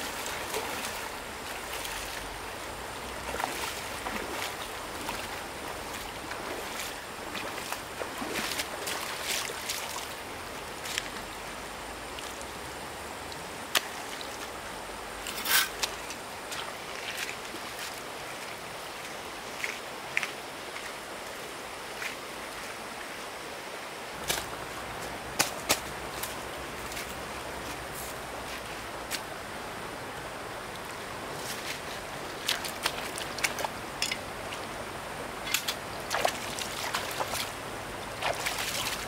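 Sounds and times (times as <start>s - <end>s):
small splashes and knocks: 0.0s - 2.3s, 3.2s - 10.2s, 24.2s - 27.2s, 31.3s - 34.7s, 35.4s - 39.0s
stream water rushing: 0.0s - 39.0s.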